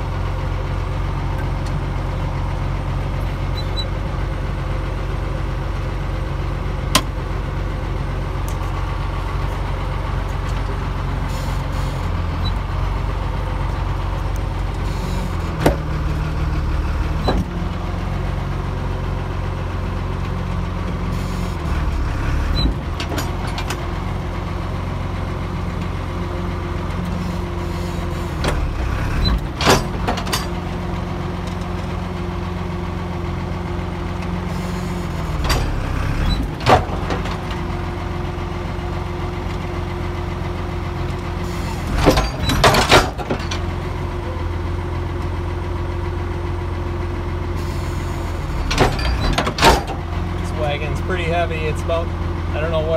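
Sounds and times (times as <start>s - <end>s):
tractor engine running: 0.0s - 52.9s
knocks and rattles: 28.4s - 30.6s, 35.4s - 37.7s, 41.8s - 43.8s, 48.6s - 50.1s.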